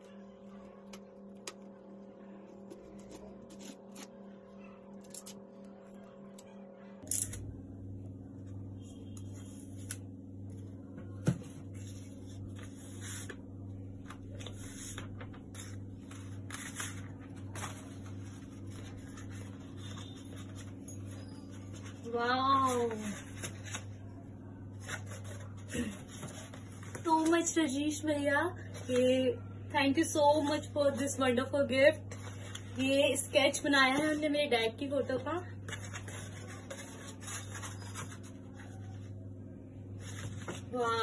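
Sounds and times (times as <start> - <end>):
paper rustling and crinkling: 14.0 - 24.1, 24.7 - 27.5, 35.6 - 39.1, 40.0 - 41.0.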